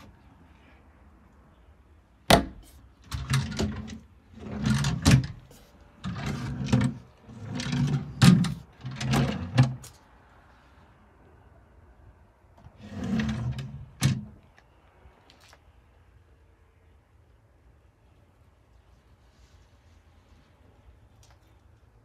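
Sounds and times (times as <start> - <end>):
wooden drawers sliding: 3.0 - 9.8, 12.7 - 14.4.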